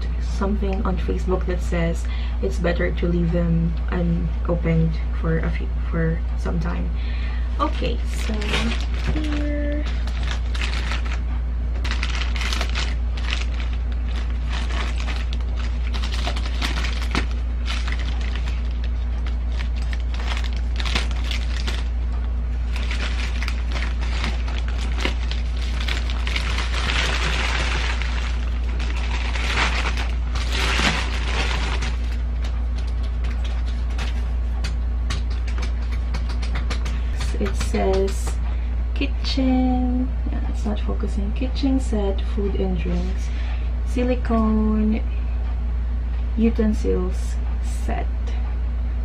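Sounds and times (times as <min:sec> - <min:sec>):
steady low hum: 0:00.0 - 0:49.0
plastic bag crinkling: 0:07.6 - 0:34.4.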